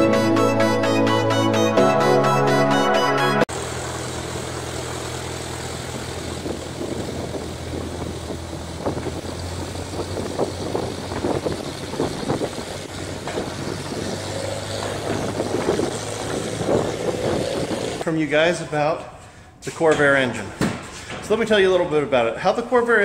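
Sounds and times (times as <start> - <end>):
propeller airplane engine drone: 3.5 - 18.0
ragged bursts of noise: 10.0 - 18.0.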